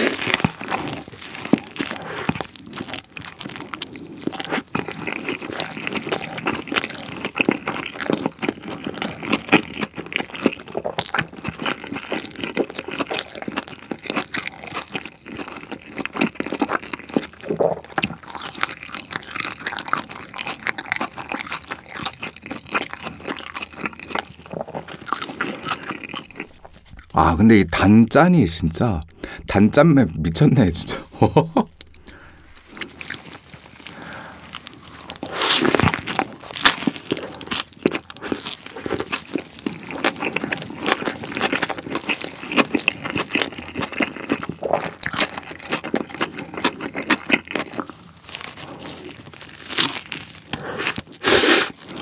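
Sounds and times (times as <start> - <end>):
chewing and crunching sandwich: 0.0 - 27.2, 30.9 - 52.0.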